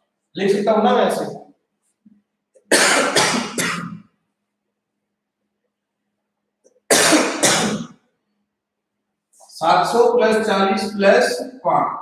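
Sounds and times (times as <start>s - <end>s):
person coughing: 2.7s - 4.0s, 6.9s - 7.9s.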